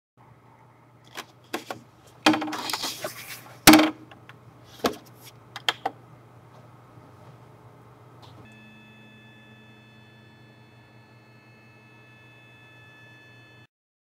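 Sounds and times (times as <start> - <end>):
low hum: 8.4 - 13.7.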